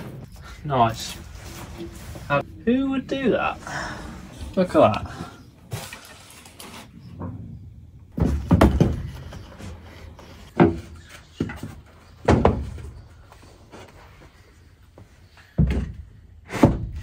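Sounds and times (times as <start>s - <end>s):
plywood boards knocking on floor: 8.2s - 9.2s.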